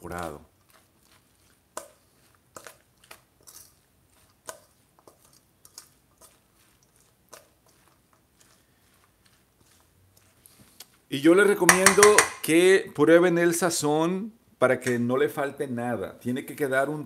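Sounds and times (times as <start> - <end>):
spoon stirring in a steel bowl: 0.1 - 12.5.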